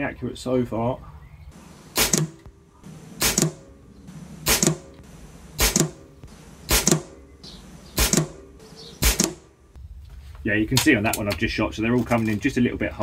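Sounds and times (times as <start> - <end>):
air rifle shots: 1.5 - 9.8.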